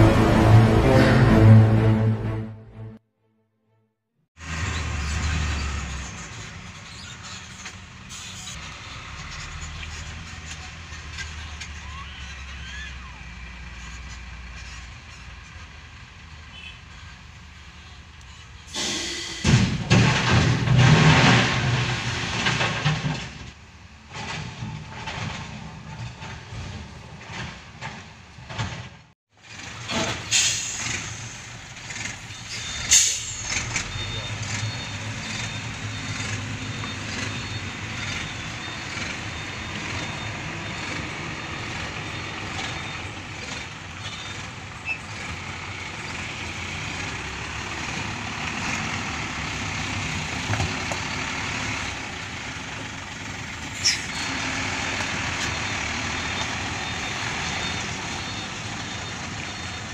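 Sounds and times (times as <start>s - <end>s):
diesel dump trucks running: 0.0s - 3.0s, 4.4s - 59.9s
air-brake hisses: 18.7s - 19.6s, 30.0s - 31.4s, 32.6s - 33.6s.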